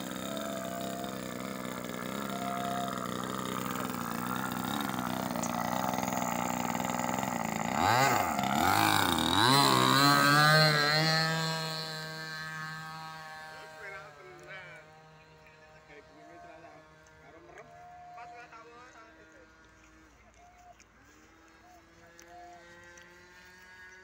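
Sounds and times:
model plane engine revving: 0:00.0 - 0:20.2, 0:21.0 - 0:24.0.

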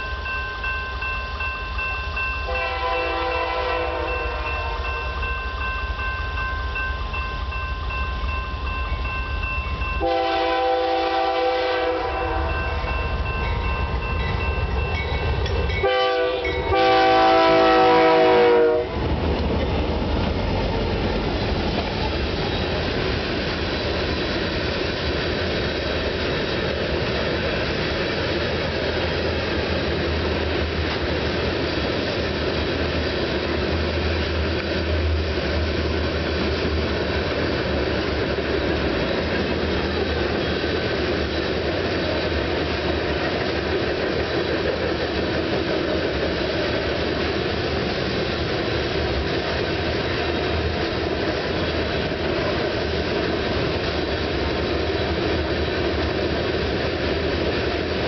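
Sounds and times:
low rumble of diesel locomotives: 0:00.0 - 0:58.0
locomotive air horn: 0:02.5 - 0:05.0, 0:10.0 - 0:12.8, 0:15.8 - 0:19.0.

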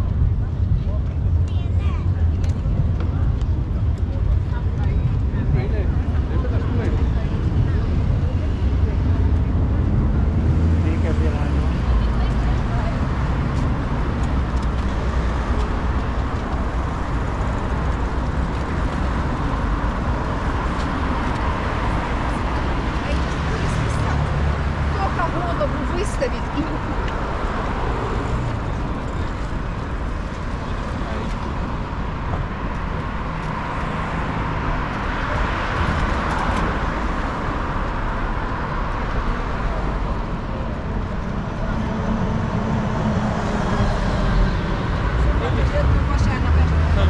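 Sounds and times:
low rumble of passing vehicles: 0:00.0 - 0:47.0
traffic rushing past: 0:00.0 - 0:47.0.

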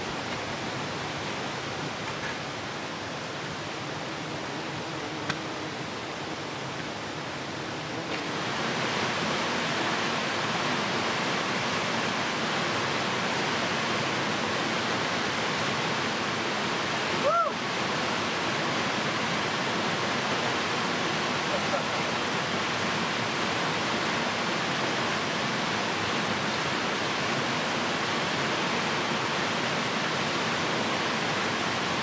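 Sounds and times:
waterfall pouring into pool: 0:08.2 - 0:18.2
short cry: 0:17.2 - 0:17.6.

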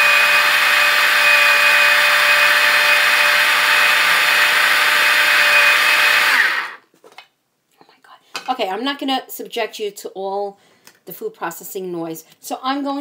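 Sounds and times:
food chopper motor running: 0:00.0 - 0:06.8.

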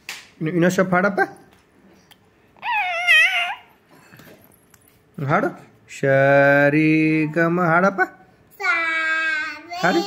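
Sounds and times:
baby squealing: 0:02.6 - 0:03.8.

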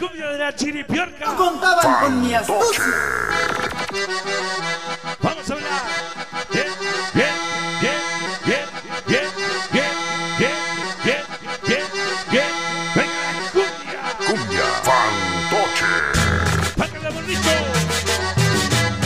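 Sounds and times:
cumbia music with accordion: 0:03.4 - 0:19.0.

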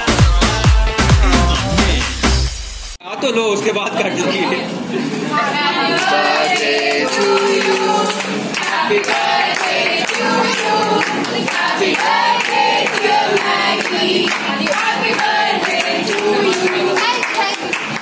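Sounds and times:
women singing together: 0:05.3 - 0:18.0
rhythmic clapping: 0:05.9 - 0:18.0.

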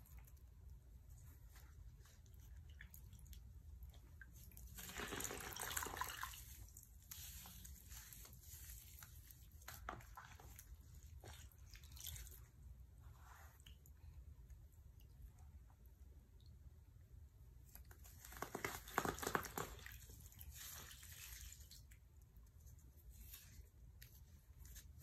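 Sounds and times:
wet foam squishing: 0:01.3 - 0:13.8, 0:17.6 - 0:22.1.

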